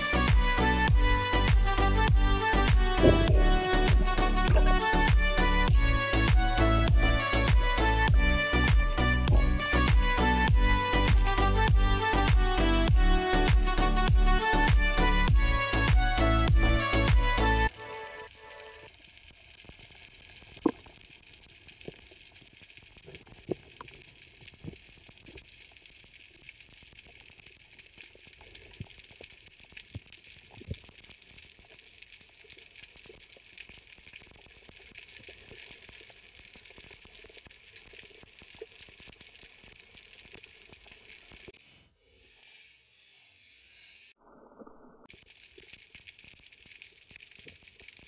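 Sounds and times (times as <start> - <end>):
sharp clicks and pops: 19.6 - 25.5.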